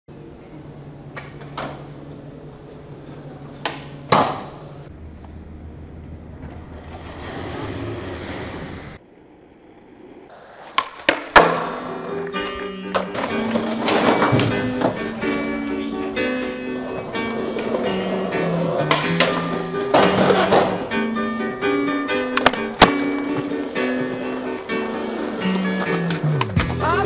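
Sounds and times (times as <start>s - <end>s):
skateboard wheels rolling: 1.0s - 26.8s
skateboard clacking on ground: 10.3s - 20.9s, 22.2s - 26.6s.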